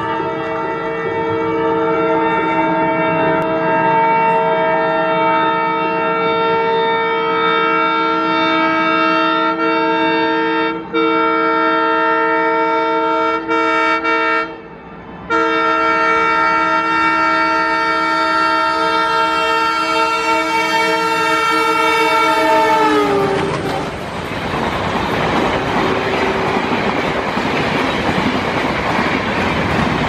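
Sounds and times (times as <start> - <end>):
locomotive horn blast: 0.0 - 24.0.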